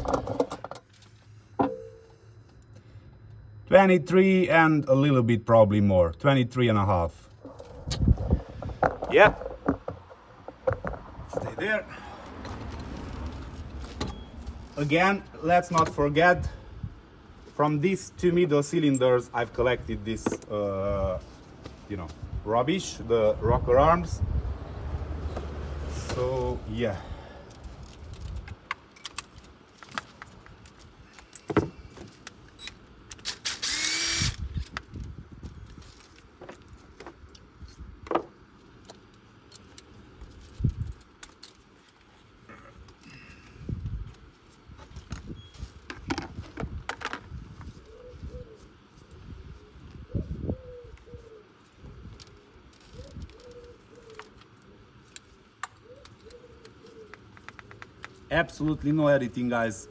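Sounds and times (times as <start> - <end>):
dove cooing: 47.7 - 54.9, 55.8 - 58.1.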